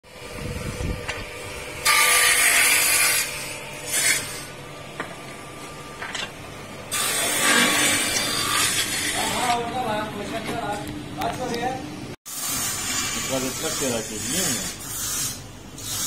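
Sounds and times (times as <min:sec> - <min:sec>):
woodworking machines cutting: 0:01.0 - 0:04.5, 0:06.9 - 0:09.8, 0:12.5 - 0:14.8.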